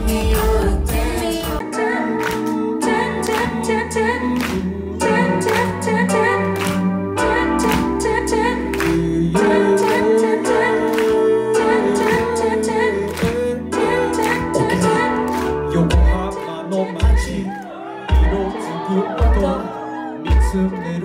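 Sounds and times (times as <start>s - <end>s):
person singing: 0.0s - 21.0s
steady drum beat: 18.1s - 18.5s, 19.2s - 19.6s.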